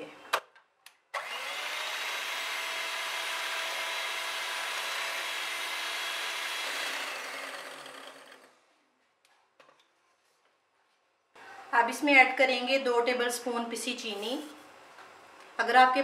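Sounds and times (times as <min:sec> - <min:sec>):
electric hand mixer whining: 0:01.2 - 0:08.6.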